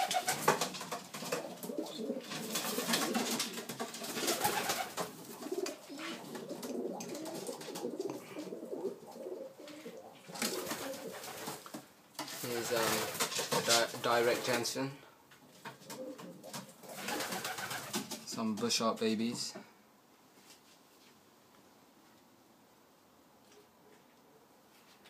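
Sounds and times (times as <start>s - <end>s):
pigeons cooing: 0.0s - 0.5s, 1.2s - 11.6s, 15.8s - 18.0s.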